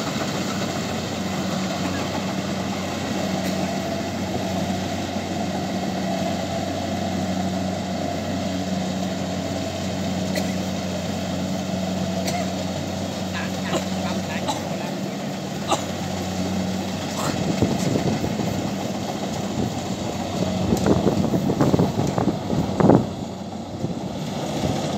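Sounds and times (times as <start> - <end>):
combine harvester engine running: 0.0 - 24.9.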